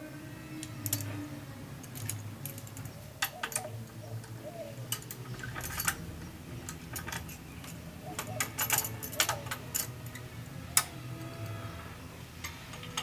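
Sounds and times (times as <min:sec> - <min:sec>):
wrench clicking on metal nuts: 0:06.7 - 0:10.2.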